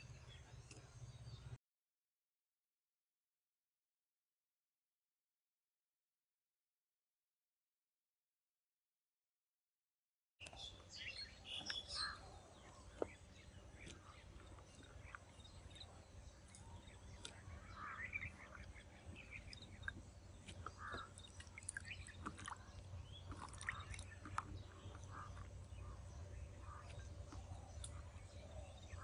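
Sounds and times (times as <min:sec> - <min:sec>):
birds chirping: 0:10.4 - 0:29.0
steady low hum: 0:10.4 - 0:29.0.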